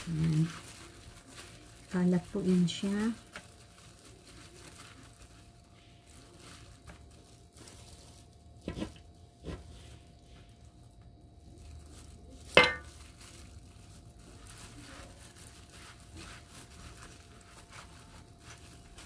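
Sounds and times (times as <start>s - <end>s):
soft rustles and crinkles: 0.0s - 19.0s.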